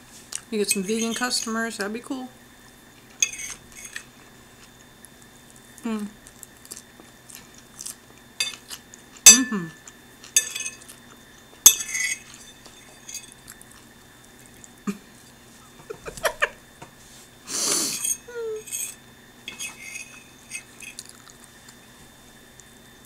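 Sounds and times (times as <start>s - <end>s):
fork scraping on plate: 3.2s - 4.0s, 17.9s - 21.1s.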